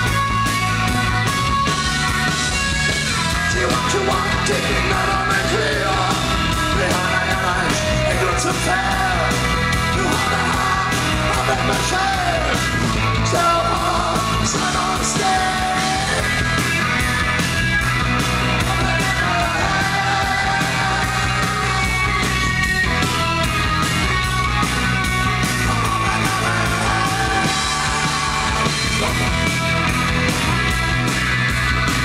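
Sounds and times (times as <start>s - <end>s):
drums with steady beat: 0.0s - 32.0s
electric guitar: 0.0s - 32.0s
man yelling and singing: 3.2s - 16.6s, 18.5s - 22.6s, 25.3s - 29.7s.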